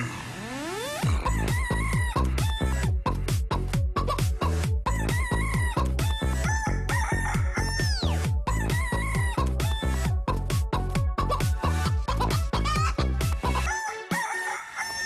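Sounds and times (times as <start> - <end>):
techno with chicken clucking samples: 0.0 - 15.0.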